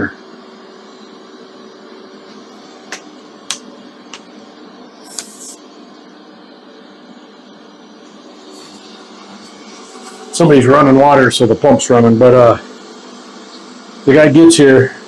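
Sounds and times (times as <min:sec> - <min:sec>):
water pump humming: 0:00.0 - 0:15.0
short hiss: 0:05.0 - 0:05.6.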